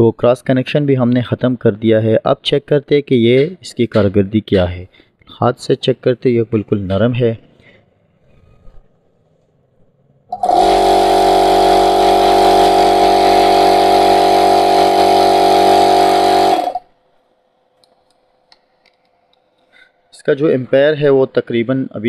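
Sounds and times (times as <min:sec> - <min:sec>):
air compressor motor humming: 0:10.3 - 0:18.5.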